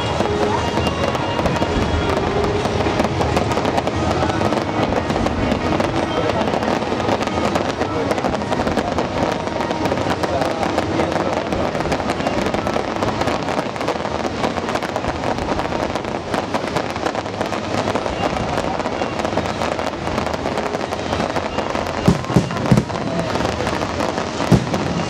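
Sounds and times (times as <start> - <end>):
fireworks booms: 0.0 - 25.0
fireworks crackling: 0.0 - 25.0.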